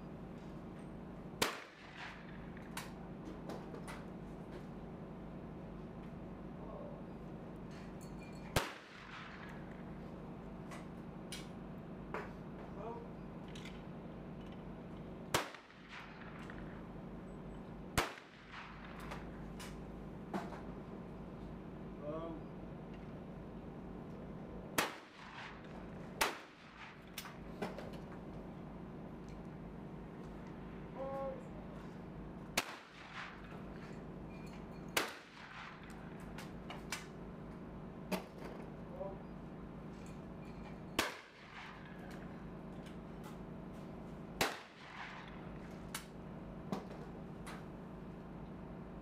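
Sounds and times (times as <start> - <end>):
shotgun shots: 1.4 - 2.6, 8.6 - 9.7, 15.3 - 16.8, 18.0 - 19.3, 24.8 - 27.4, 32.6 - 33.6, 35.0 - 36.2, 41.0 - 42.0, 44.4 - 45.5.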